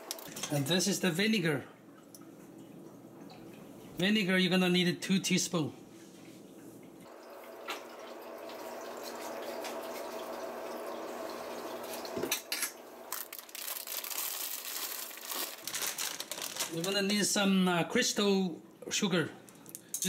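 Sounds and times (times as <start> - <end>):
vinegar trickling: 12.8 - 18.0
plastic bag crinkling: 13.1 - 17.4.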